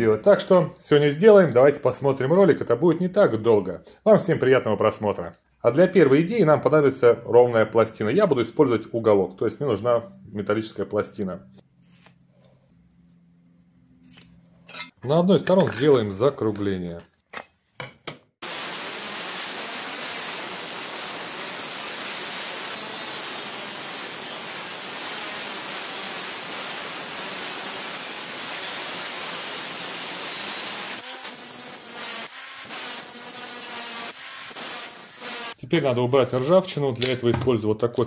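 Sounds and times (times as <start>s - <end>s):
angle grinder grinding steel: 14.0s - 15.0s, 18.4s - 35.6s.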